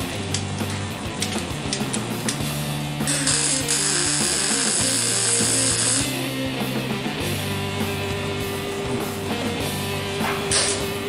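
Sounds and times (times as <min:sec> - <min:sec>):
arc welder hissing and crackling: 0:00.0 - 0:06.3
background music: 0:00.0 - 0:11.0.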